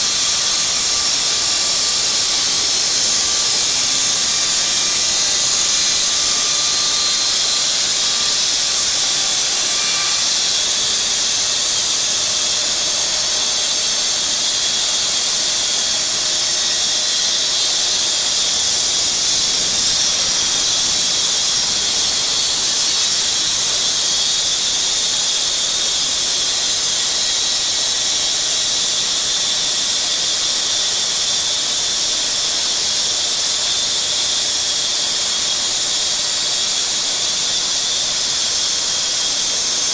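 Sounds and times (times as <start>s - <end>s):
bandsaw mill sawing log: 0.0s - 39.9s.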